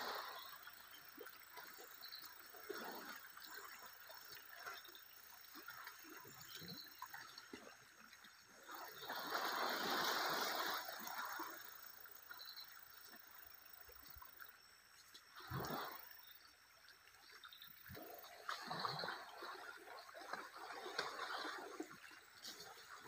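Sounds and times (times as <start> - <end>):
elephants splashing in water: 8.6 - 12.1, 17.8 - 23.0.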